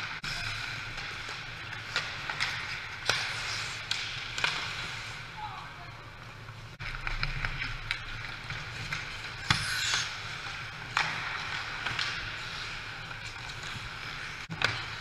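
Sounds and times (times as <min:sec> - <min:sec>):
skates scraping on ice: 0:00.0 - 0:05.4, 0:06.2 - 0:15.0
sticks and puck clacking: 0:00.0 - 0:05.4, 0:06.2 - 0:15.0.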